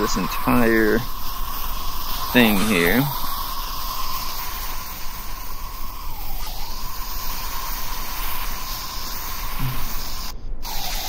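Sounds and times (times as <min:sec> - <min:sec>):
steady hissing noise: 0:00.0 - 0:11.0.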